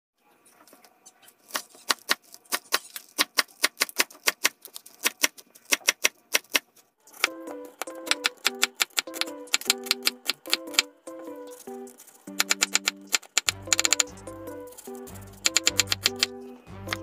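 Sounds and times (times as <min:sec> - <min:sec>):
plucked-string music: 0:07.1 - 0:17.0.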